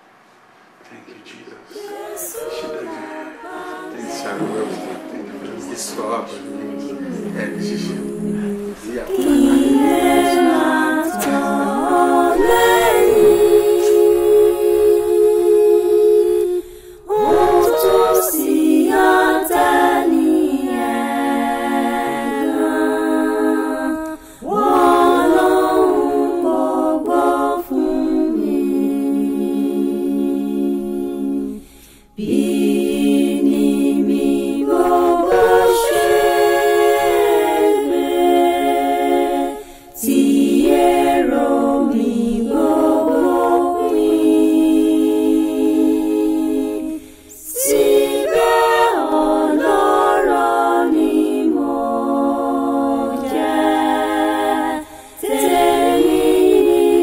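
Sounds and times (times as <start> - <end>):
person singing unaccompanied: 1.7 - 28.8.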